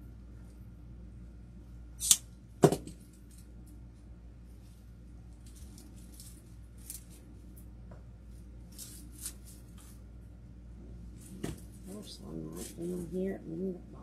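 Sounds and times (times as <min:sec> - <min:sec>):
low steady hum: 0:00.0 - 0:14.0
stems rustling: 0:03.1 - 0:10.1, 0:11.1 - 0:13.8.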